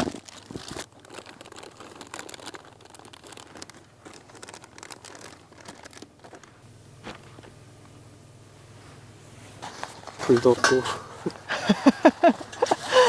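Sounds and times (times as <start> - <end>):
plastic bags crinkling: 0.0 - 6.6.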